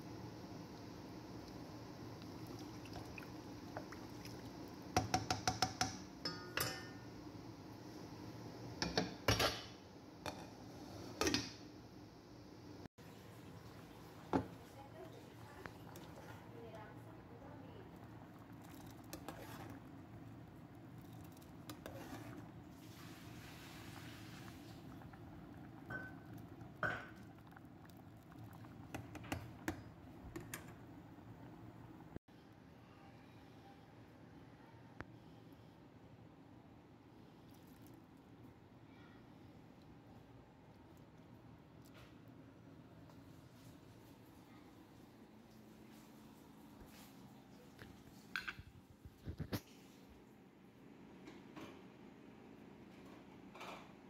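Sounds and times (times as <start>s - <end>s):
soup boiling: 0.1s - 6.0s, 13.1s - 32.1s.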